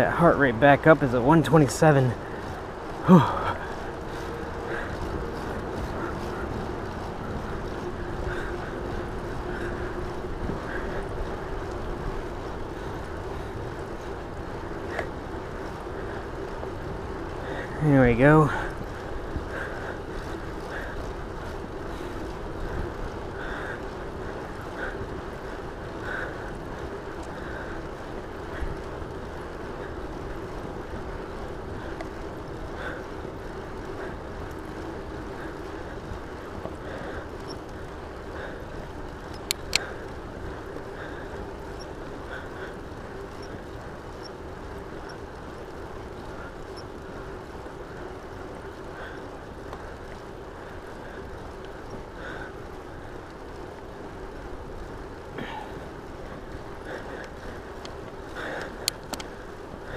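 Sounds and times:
bicycle tyres rumbling on asphalt: 0.0s - 59.9s
sharp clicks: 39.3s - 40.0s, 58.6s - 59.3s.

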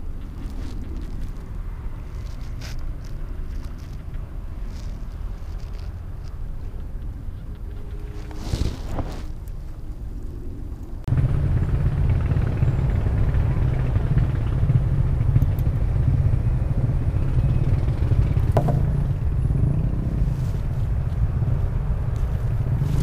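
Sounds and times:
sharp knock: 18.6s - 18.9s.

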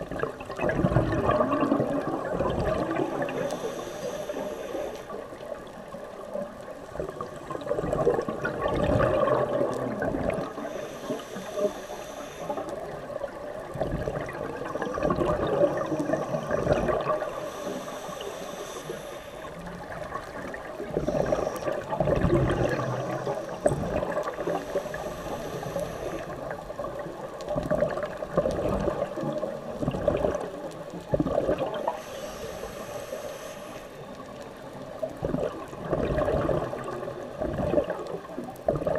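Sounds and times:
underwater exhaled bubbles gurgling: 0.0s - 38.9s
regulator hiss: 3.1s - 5.4s, 10.5s - 13.4s, 14.6s - 19.9s, 20.8s - 22.0s, 22.7s - 26.6s, 31.8s - 34.4s.

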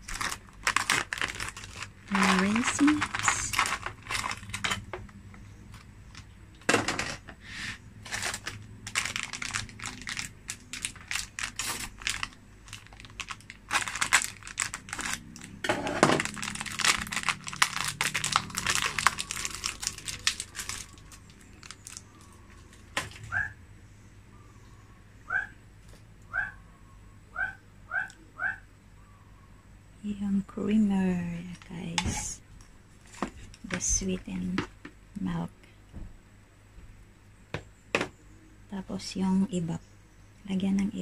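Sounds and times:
plastic packaging crinkling: 0.0s - 6.3s, 8.0s - 23.3s.

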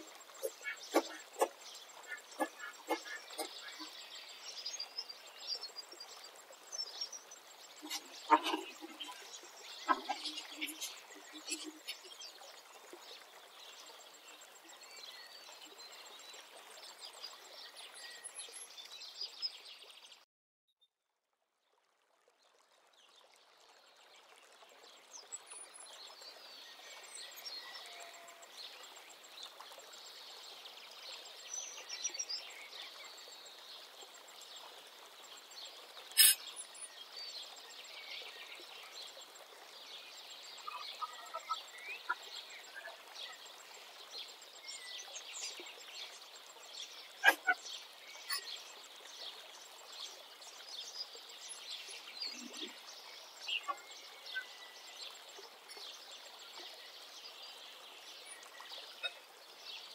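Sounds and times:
birds chirping and calling: 0.0s - 4.1s, 7.8s - 12.4s, 36.2s - 36.7s, 40.6s - 43.0s, 47.2s - 48.5s.

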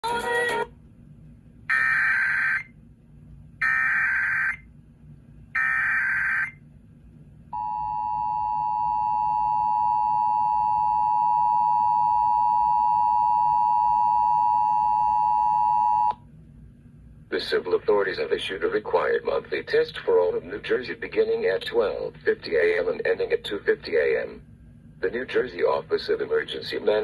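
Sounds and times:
steady two-tone attention signal: 7.6s - 16.1s.

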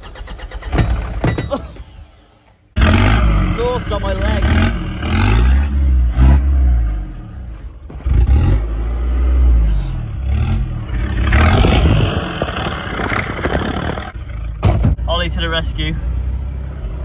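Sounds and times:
engine running and revving: 2.8s - 14.6s
knocks and rattles: 11.3s - 15.1s.

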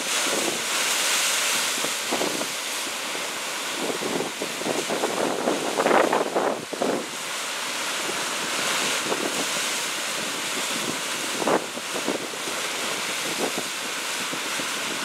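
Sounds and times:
ocean surf washing: 0.0s - 15.0s
wave splashing on rocks: 0.0s - 15.0s.

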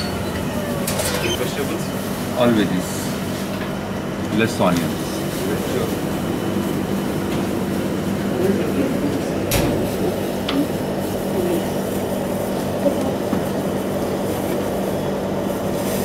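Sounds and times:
air conditioning hum: 0.0s - 16.0s.

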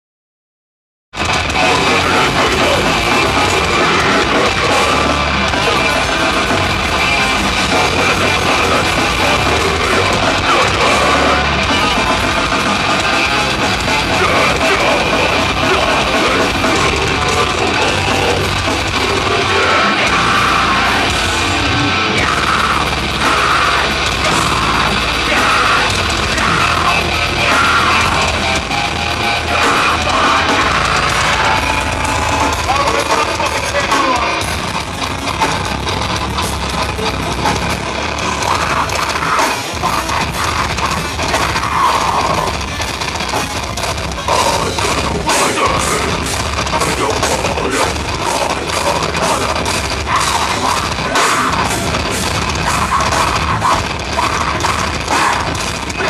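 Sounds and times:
heavy metal band playing live: 1.1s - 56.0s
vocalist yelling into microphone: 12.9s - 21.3s, 22.0s - 34.4s.

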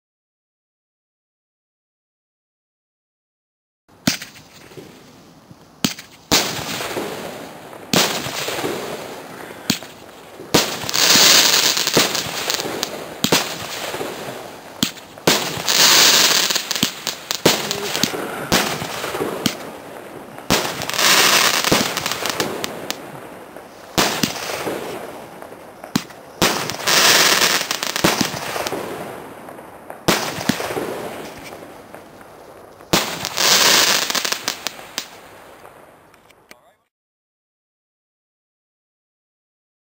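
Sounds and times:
fireworks bangs: 4.0s - 5.2s, 5.8s - 36.1s
fireworks crackling: 4.0s - 36.2s.

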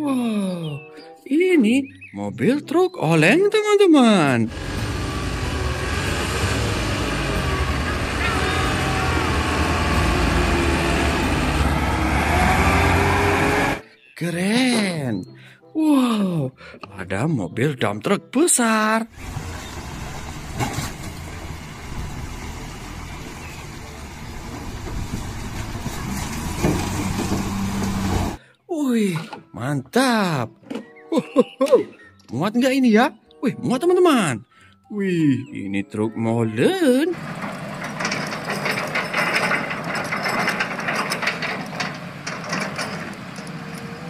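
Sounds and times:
diesel truck engine running: 4.5s - 13.8s, 19.2s - 28.4s, 37.1s - 44.0s
mechanical rattling and clicking: 37.2s - 44.0s.

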